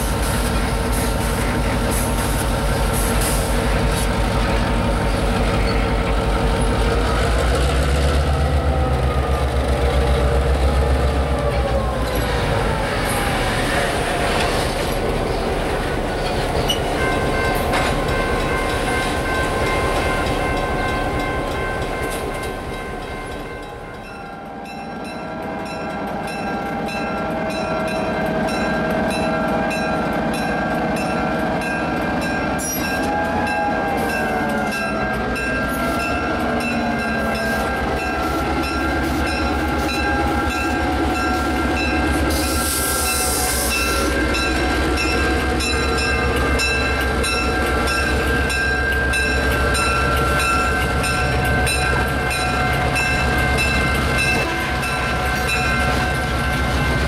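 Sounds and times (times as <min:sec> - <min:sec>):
diesel locomotive engine rumble: 0:00.0 - 0:57.0
train horn: 0:11.3 - 0:15.4, 0:24.0 - 0:31.6, 0:32.5 - 0:48.0, 0:49.0 - 0:57.0.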